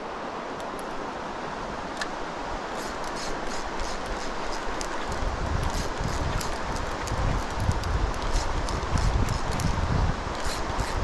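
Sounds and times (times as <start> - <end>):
river rushing: 0.0 - 11.0
strong wind: 0.0 - 11.0
light rustling ticks: 2.0 - 11.0
wind buffeting microphone: 5.0 - 11.0.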